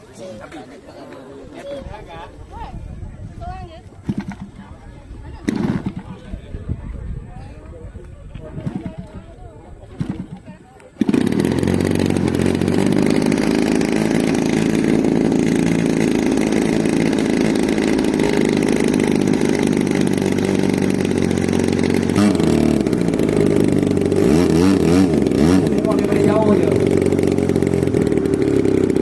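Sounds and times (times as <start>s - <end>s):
model plane engine idling: 9.9s - 29.0s.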